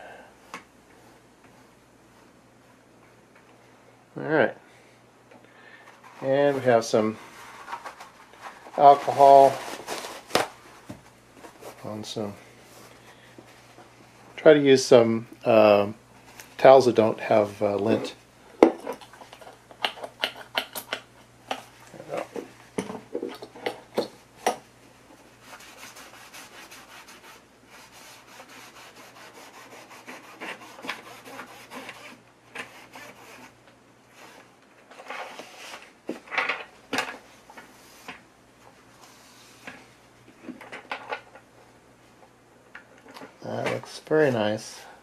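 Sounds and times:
cloth rubbing on circuit board: 6.0s - 10.9s, 25.3s - 34.4s.

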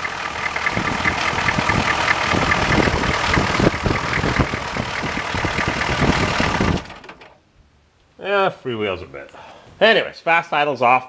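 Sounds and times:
diesel engine idling: 0.0s - 7.4s.

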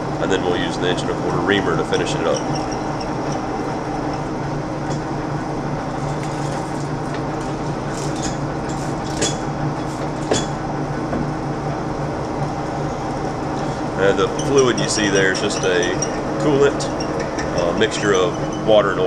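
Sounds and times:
metal lathe drilling steel: 13.8s - 19.0s.

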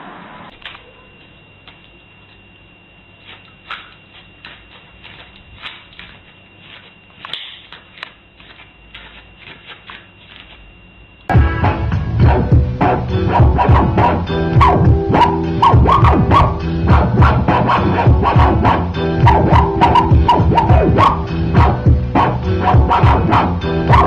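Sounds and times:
dog claws tapping on floor: 3.2s - 10.6s.

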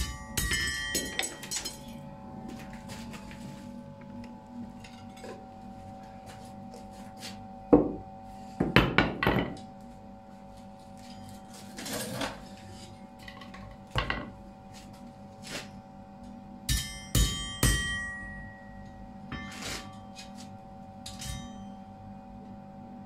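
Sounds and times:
hammer striking metal on anvil: 0.0s - 2.0s, 16.7s - 20.2s, 21.1s - 21.8s
steady hum: 0.0s - 23.0s.

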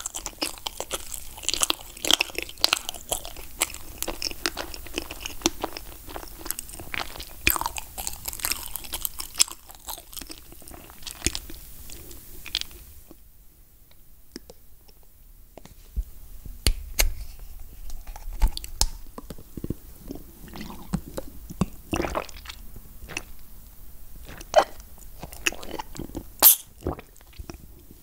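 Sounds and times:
sipping and swallowing: 20.0s - 23.4s, 24.2s - 27.6s.

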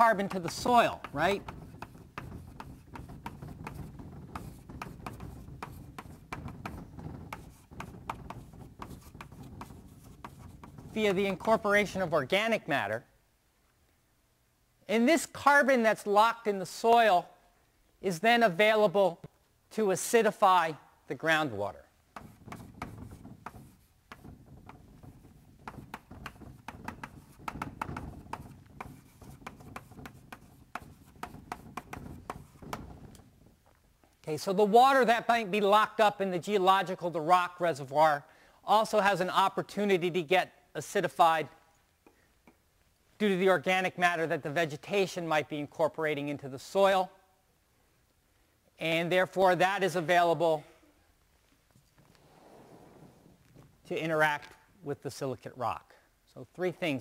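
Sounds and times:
handwriting taps and strokes: 0.2s - 11.6s, 22.1s - 33.3s.

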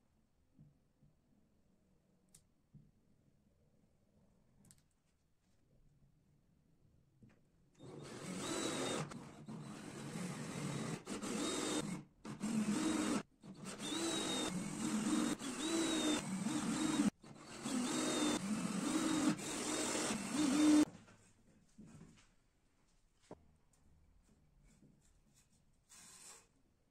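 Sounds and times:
cordless drill boring into wood: 7.8s - 20.9s.

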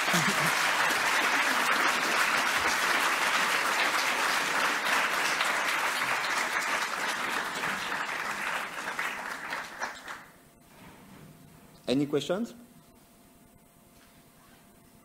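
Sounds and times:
audience applauding: 0.0s - 10.4s.

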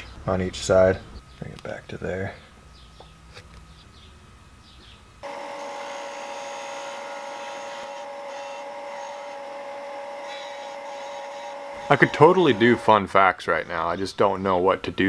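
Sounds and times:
disc sander whining: 5.2s - 13.0s.

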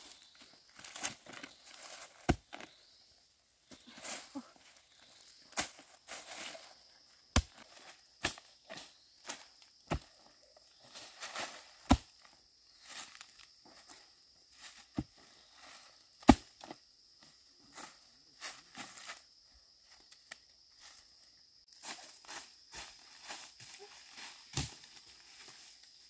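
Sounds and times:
hoe chopping into soil: 11.8s - 12.2s, 16.2s - 16.7s
footsteps on dry leaves: 21.7s - 26.0s.

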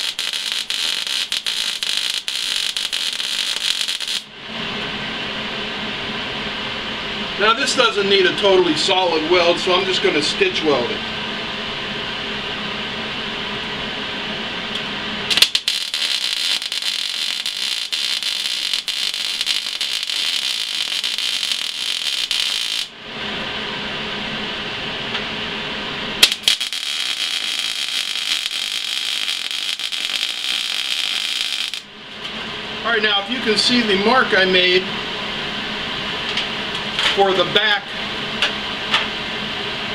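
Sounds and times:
welding arc crackling: 0.0s - 4.3s, 14.7s - 23.0s, 26.2s - 31.9s
low steady hum: 0.0s - 39.9s.

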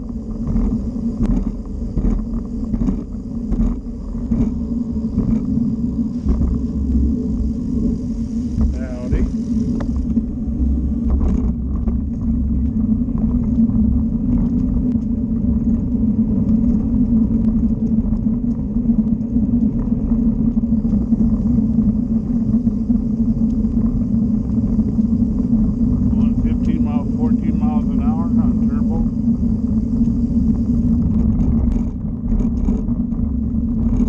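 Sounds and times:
constant low hum: 0.0s - 34.0s
wheels rolling on pavement: 0.0s - 34.0s
wind buffeting microphone: 0.0s - 34.0s.

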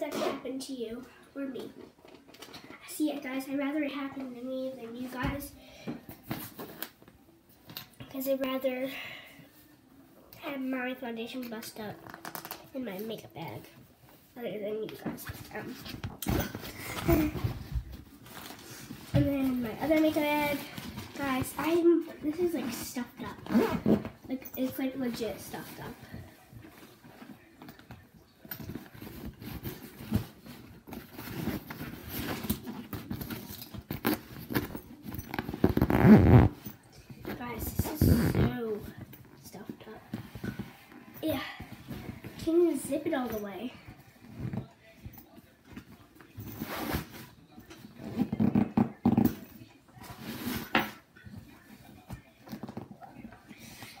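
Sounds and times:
zipper scraping and clicking: 22.6s - 24.2s, 29.0s - 38.5s
fabric rustling: 28.6s - 44.9s.

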